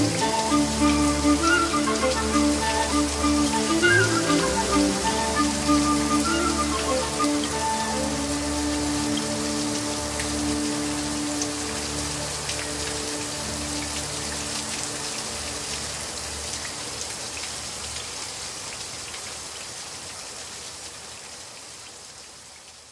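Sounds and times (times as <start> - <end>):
background music held notes: 0.0 - 16.4
steady rain falling: 0.0 - 22.9.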